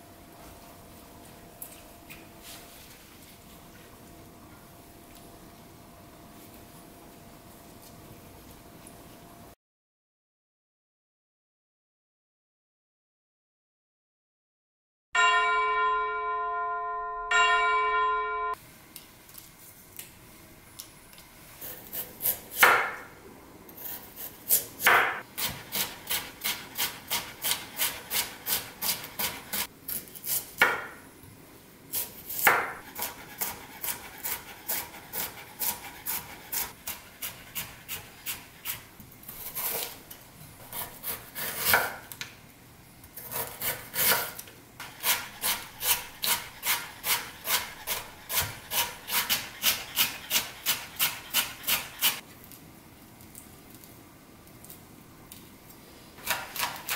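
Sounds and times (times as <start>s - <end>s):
short chime: 15.2s - 18.6s
knife chopping on wooden board: 22.0s - 23.0s, 24.5s - 29.7s, 32.3s - 38.8s, 43.2s - 52.2s.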